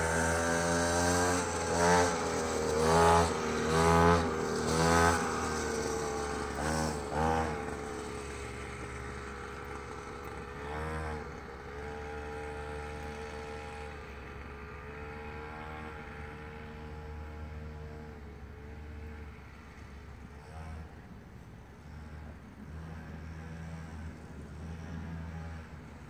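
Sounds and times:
dirt bike engine revving: 0.0s - 19.2s.

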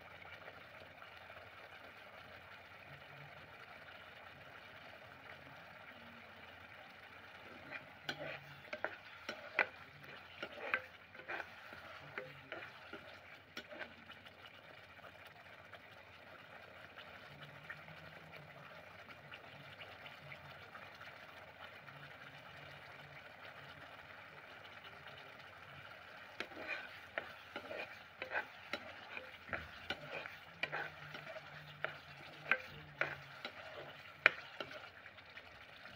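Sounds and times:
curry bubbling and sizzling: 0.0s - 35.9s
metal spatula scraping pan: 7.3s - 14.2s, 25.8s - 35.0s.

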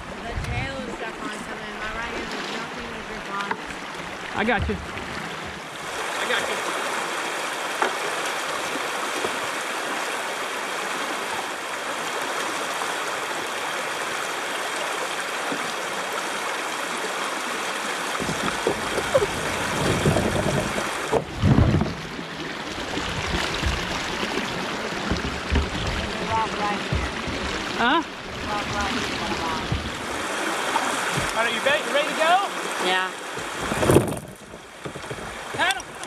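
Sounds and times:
water rushing over rocks: 0.0s - 36.0s
low thumps and knocks: 4.4s - 5.6s, 18.1s - 22.3s, 23.0s - 31.4s, 33.4s - 36.0s.

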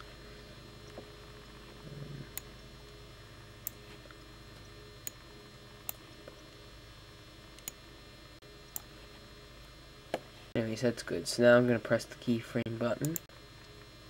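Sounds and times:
low steady hum: 0.0s - 14.0s
computer mouse clicking: 7.6s - 7.8s.

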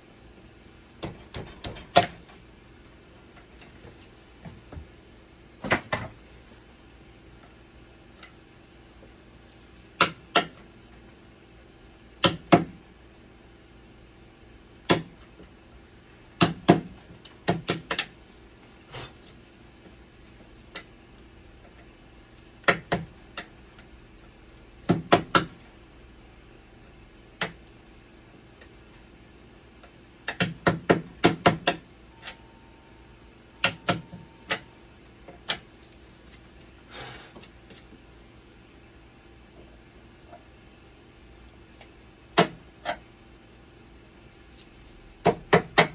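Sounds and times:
steady low hum: 0.0s - 45.9s.

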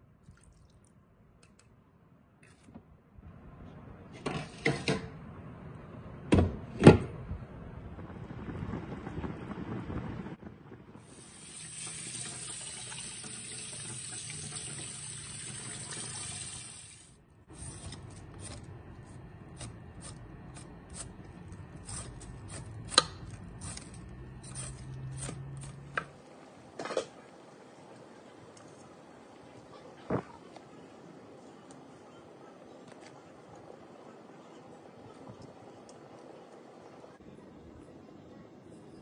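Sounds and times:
tap water running: 11.1s - 17.2s.

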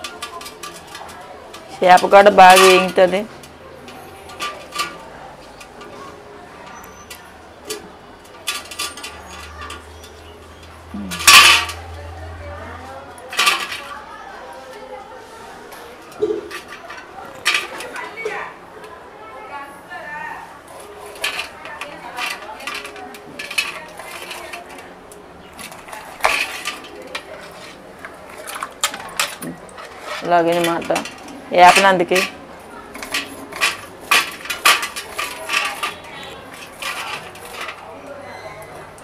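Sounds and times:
loud clatter of dishes: 0.0s - 11.9s, 13.3s - 14.0s, 16.0s - 18.6s, 20.9s - 38.9s
utensils and dishes clinking: 0.0s - 19.0s, 20.6s - 39.0s
knife and metal dishes clinking: 25.5s - 38.0s.

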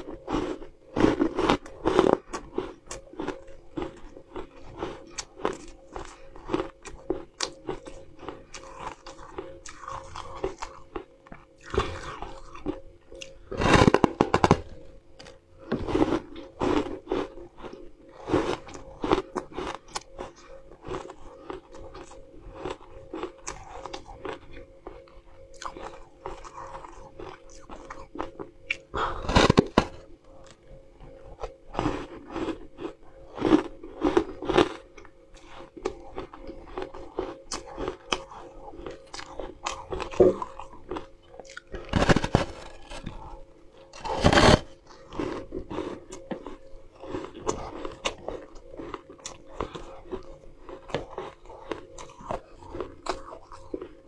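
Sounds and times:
crunching crisp wafer: 0.0s - 30.6s, 31.4s - 54.0s
faint steady hum: 0.0s - 54.0s.

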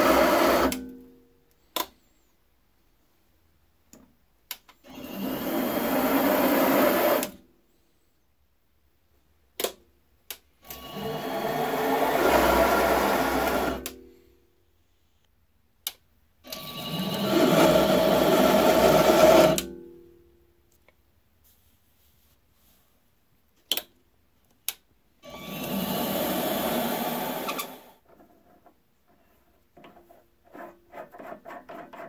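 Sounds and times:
lathe motor spinning: 10.7s - 13.8s, 16.7s - 19.6s, 25.3s - 27.9s.

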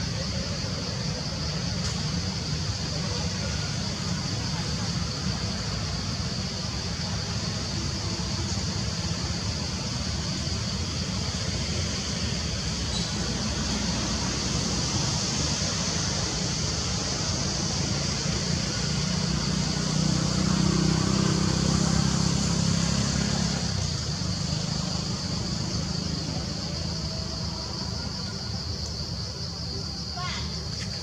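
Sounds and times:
steady high hiss: 0.0s - 31.0s.

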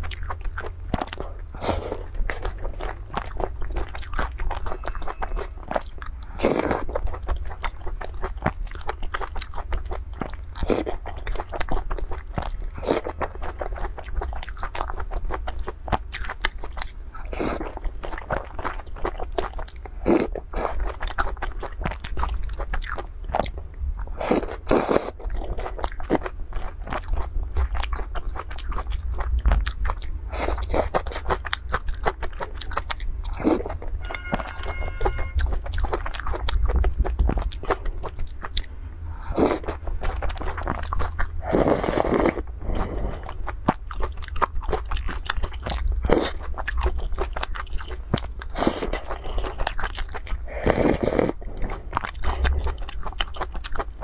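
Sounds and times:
wet chewing and crunching: 0.0s - 54.0s
slurping soup: 41.4s - 43.5s, 50.4s - 52.9s.

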